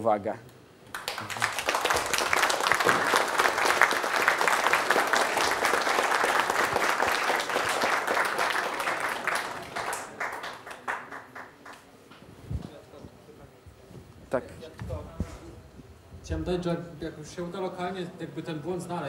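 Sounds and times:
audience applauding: 0.9 - 11.9.

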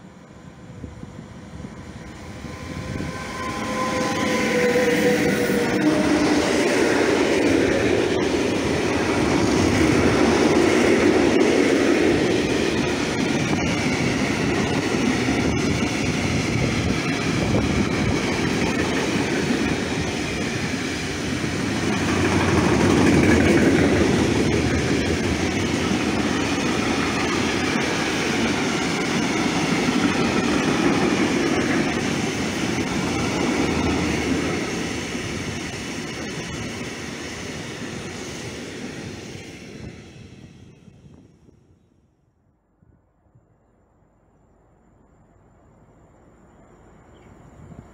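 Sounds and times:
freight wagons rolling on rails: 21.3 - 35.1.

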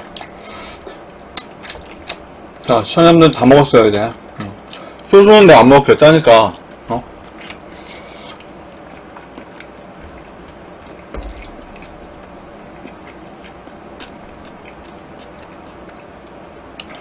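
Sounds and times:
wet eating sounds: 0.1 - 2.7, 6.5 - 17.0.

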